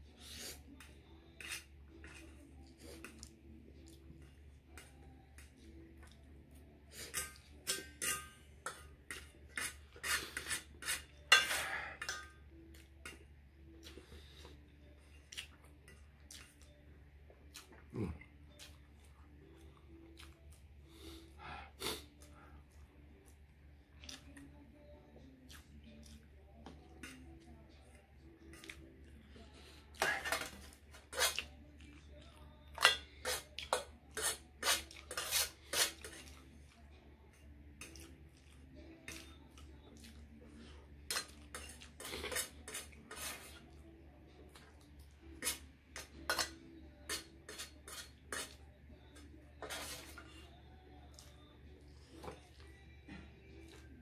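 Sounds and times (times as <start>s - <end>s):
fork scraping on metal tray: 1.2s - 3.2s, 6.9s - 12.3s, 30.0s - 31.5s, 32.8s - 36.4s, 41.1s - 43.7s, 45.4s - 48.6s, 49.6s - 50.5s
fingers scraping noodles on metal tray: 34.1s - 36.3s, 47.1s - 48.6s.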